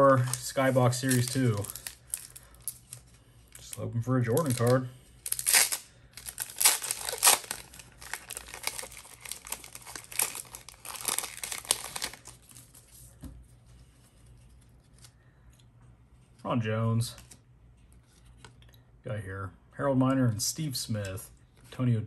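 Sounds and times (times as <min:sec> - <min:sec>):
wrapper tearing and crinkling: 0:00.2 - 0:03.0, 0:03.6 - 0:12.8.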